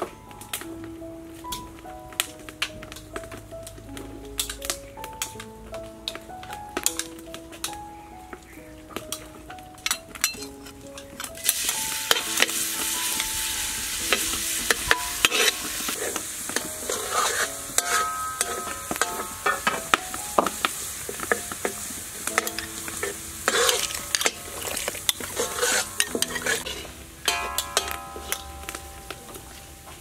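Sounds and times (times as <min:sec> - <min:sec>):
oil sizzling in a wok: 0:09.0 - 0:30.0
utensils clinking on metal: 0:09.8 - 0:30.0
water boiling hard: 0:11.4 - 0:29.0.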